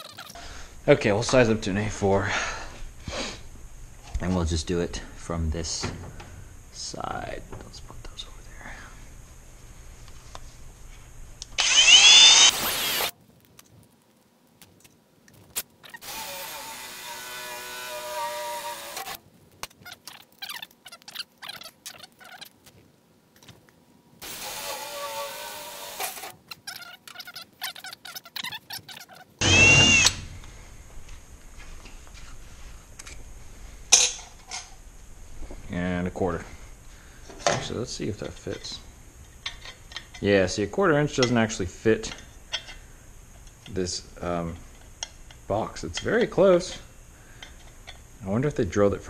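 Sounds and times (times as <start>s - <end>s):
drill click: 11.4s - 13.1s, 29.4s - 30.5s
drill boring through sheet metal: 11.6s - 13.1s, 16.0s - 19.2s, 24.2s - 26.3s, 29.4s - 30.2s.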